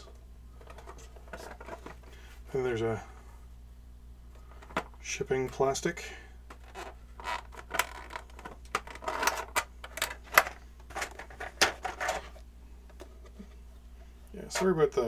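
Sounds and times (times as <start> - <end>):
plastic packaging crackling: 6.6 - 12.2.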